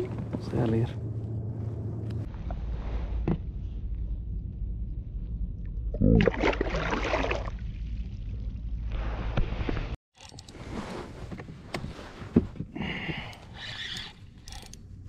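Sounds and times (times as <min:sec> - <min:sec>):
low rumble: 0:00.0 - 0:10.0.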